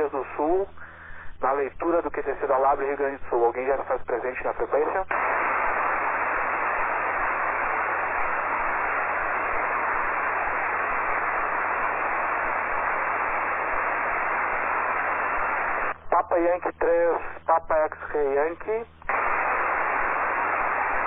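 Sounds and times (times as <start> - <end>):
radio receiver static hiss: 0.0 - 21.0.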